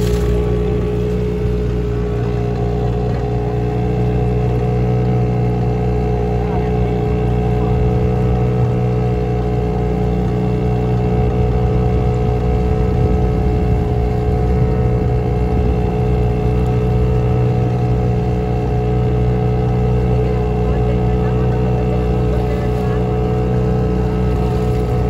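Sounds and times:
boat motor droning: 0.0s - 25.0s.

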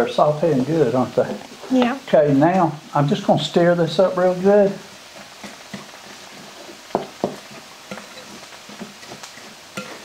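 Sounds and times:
faint vegetables sizzling: 0.0s - 10.0s
spoon stirring wet mixture: 5.1s - 10.0s.

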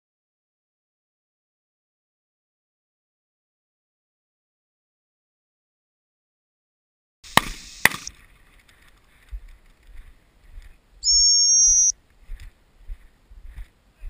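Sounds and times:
sharp cracks: 7.3s - 9.0s
dog whistle blast: 11.0s - 11.9s.

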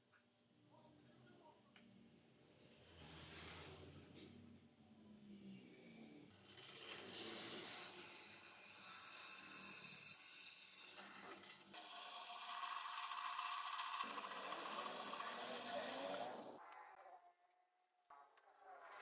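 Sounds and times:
drill press drilling steel: 6.5s - 16.6s.

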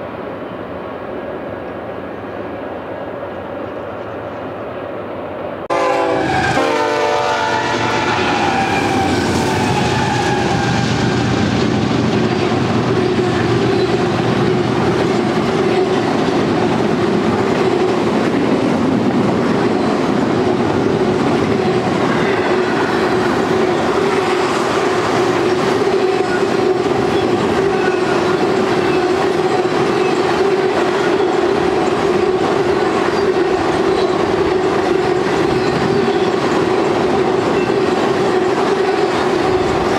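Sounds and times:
train horn: 5.7s - 11.5s
freight cars rumbling and clattering: 8.8s - 24.4s.

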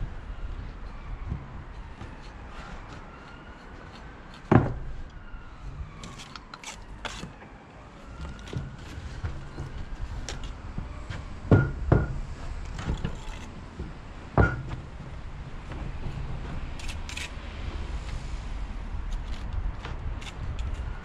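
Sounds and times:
sharp metal knocks: 11.5s - 15.0s.

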